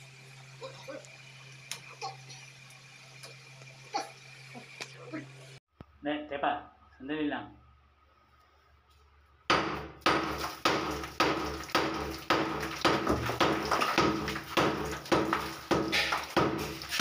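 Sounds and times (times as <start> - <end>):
hammer chipping masonry: 9.5 - 17.0.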